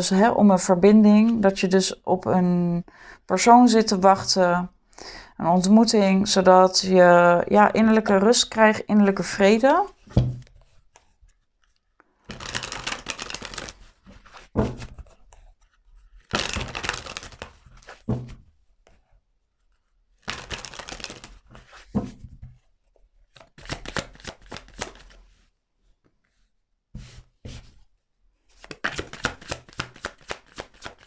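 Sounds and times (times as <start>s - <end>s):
cards riffling: 11.7s - 15.0s, 16.2s - 18.0s, 20.2s - 21.6s, 23.4s - 25.2s, 28.6s - 31.0s
sharp card taps: 28.6s - 31.0s.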